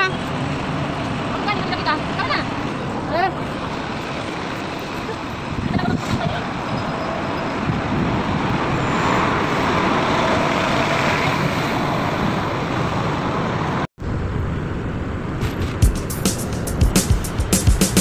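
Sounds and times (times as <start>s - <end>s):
bus engine running: 0.0s - 18.0s
street traffic rumble: 0.0s - 18.0s.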